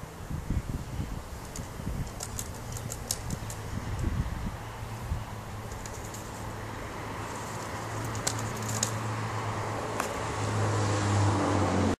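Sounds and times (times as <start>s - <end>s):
vehicle engine humming: 0.0s - 12.0s
sharp clicks: 1.4s - 4.1s, 7.6s - 9.0s.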